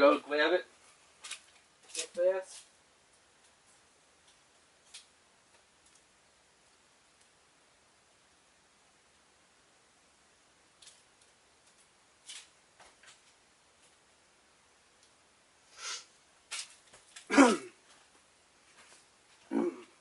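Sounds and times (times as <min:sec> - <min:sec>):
faint clicks and rustles: 0:00.8 - 0:07.4, 0:10.4 - 0:15.3, 0:16.2 - 0:20.0.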